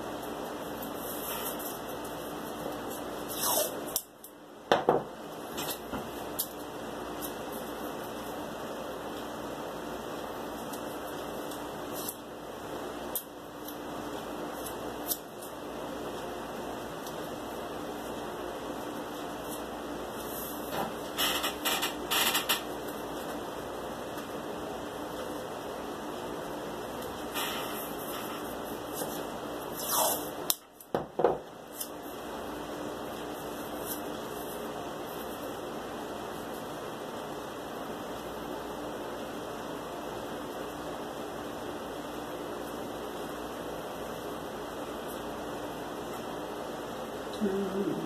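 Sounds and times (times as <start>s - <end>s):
steady background hum: 0.0s - 48.0s
snips and ticks of tape and cardboard: 14.6s - 15.6s.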